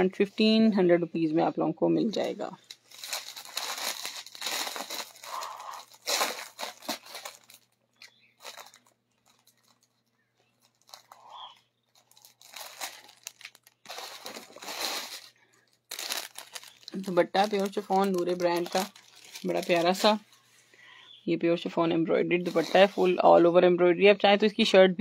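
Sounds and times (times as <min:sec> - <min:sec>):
plastic packaging crinkling: 0:02.1 - 0:20.4, 0:22.3 - 0:23.2.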